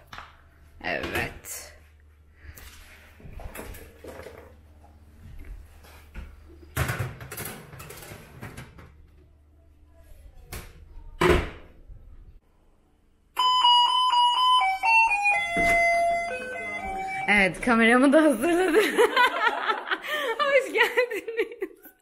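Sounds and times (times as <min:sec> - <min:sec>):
electronic doorbell chiming tune: 0:13.4 - 0:17.4.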